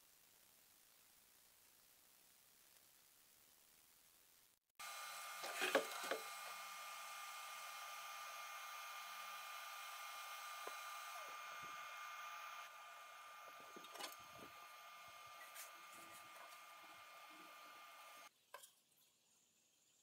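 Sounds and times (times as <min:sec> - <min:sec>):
faint whining tones: 0:04.8 - 0:18.3
printer fans whirring: 0:04.8 - 0:18.3.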